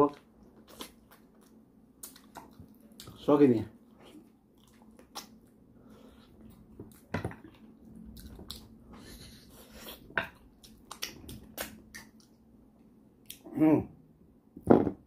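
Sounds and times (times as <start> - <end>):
wet chewing: 0.4 - 3.2, 3.9 - 8.8, 9.6 - 12.4
lip smacks and mouth clicks: 4.6 - 5.4, 10.6 - 12.4.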